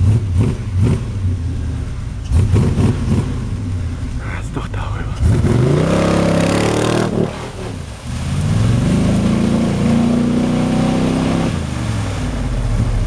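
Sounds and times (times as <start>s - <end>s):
muddy water splashing: 2.2s - 13.0s
engine revving hard: 2.3s - 3.6s, 5.2s - 11.8s.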